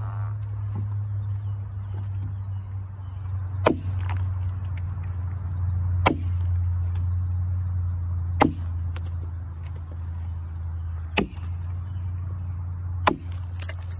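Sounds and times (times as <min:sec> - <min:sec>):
low rumble: 0:00.0 - 0:13.9
axe chopping into a log: 0:03.6 - 0:04.3, 0:06.0 - 0:06.5, 0:08.4 - 0:09.8, 0:11.2 - 0:11.7, 0:13.0 - 0:13.9.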